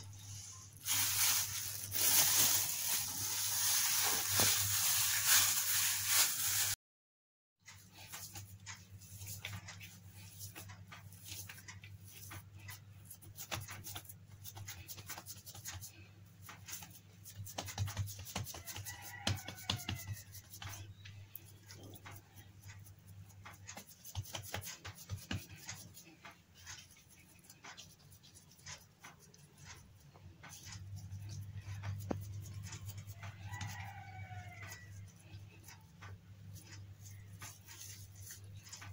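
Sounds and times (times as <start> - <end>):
hands patting dough: 7.9 - 38.9.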